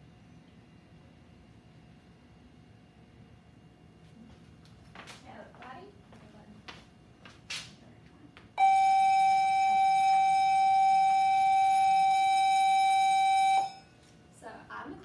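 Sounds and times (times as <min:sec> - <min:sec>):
loud steady tone: 0:08.6 - 0:14.1.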